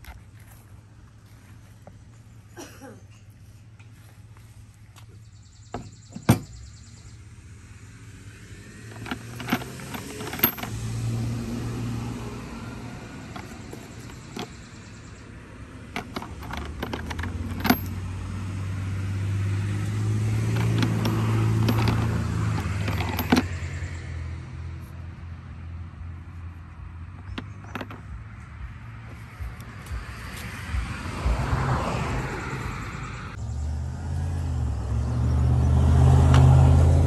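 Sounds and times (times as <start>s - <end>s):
vehicle engine humming low: 0.0s - 37.0s
ceramic knobs clinking: 8.9s - 10.7s, 16.0s - 18.0s, 20.5s - 23.5s.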